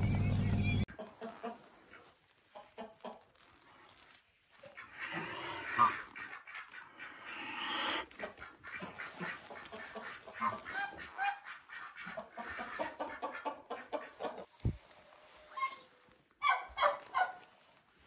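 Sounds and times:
goose honking: 8.6 - 13.0.

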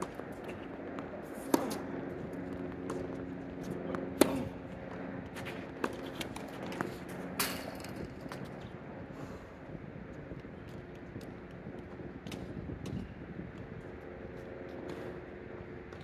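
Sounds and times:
rackets hitting tennis ball: 0.0 - 8.7
faint hum: 0.0 - 16.0.

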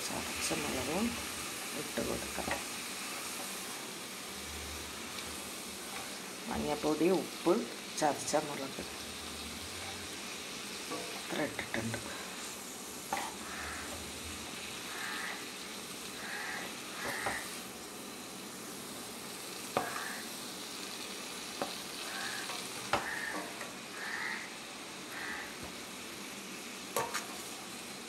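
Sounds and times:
vegetables sizzling in a pan: 0.0 - 28.0
spatula scraping a pan: 9.7 - 14.1, 16.2 - 17.6.

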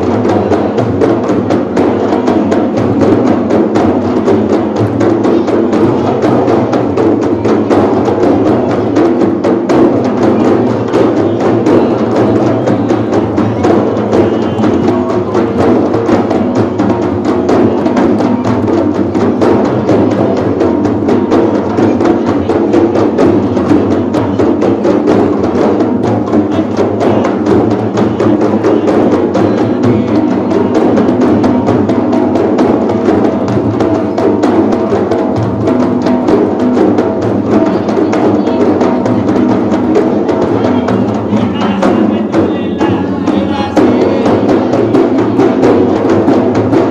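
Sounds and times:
frame drums struck by hand: 0.0 - 46.9.

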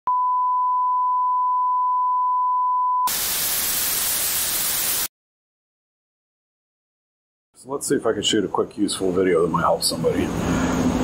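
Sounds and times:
tv static hiss: 3.1 - 5.1.

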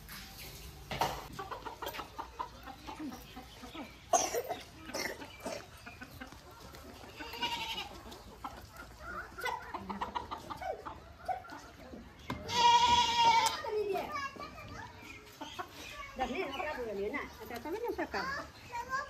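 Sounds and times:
chickens clucking: 0.0 - 19.0
goats bleating: 7.1 - 8.0, 12.4 - 13.7.

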